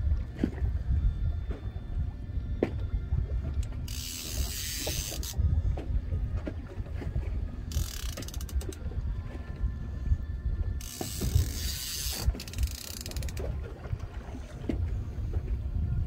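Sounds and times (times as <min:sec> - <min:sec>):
steady low rumble: 0:00.0 - 0:16.0
fishing reel ratcheting: 0:03.8 - 0:05.4, 0:07.7 - 0:08.8, 0:10.8 - 0:13.5.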